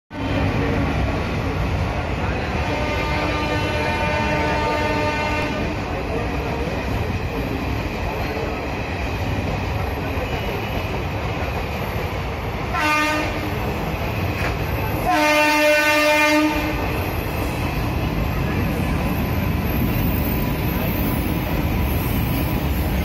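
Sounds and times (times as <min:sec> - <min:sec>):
train wheels rumbling and clattering: 0:00.1 - 0:23.0
locomotive horn: 0:02.4 - 0:05.8, 0:12.7 - 0:13.6, 0:15.0 - 0:16.9.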